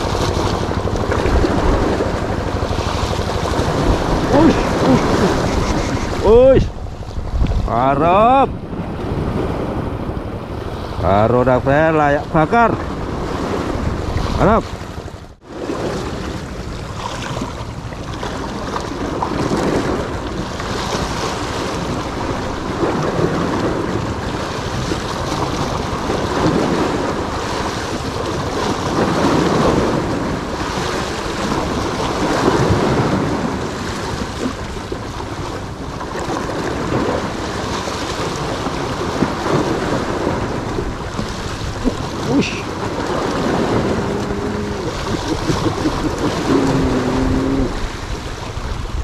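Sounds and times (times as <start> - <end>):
small waves breaking on rocks: 12.1 - 49.0.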